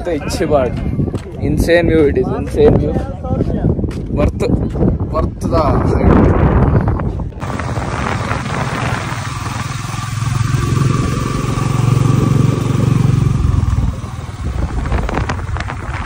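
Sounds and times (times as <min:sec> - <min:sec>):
motorcycle engine running: 0:07.3 - 0:16.0.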